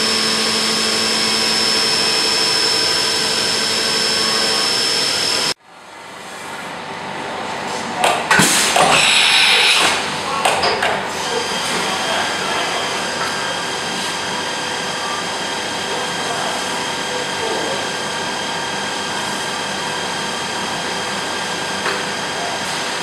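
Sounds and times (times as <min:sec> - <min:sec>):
machine spindle whine: 0:00.0 - 0:05.6.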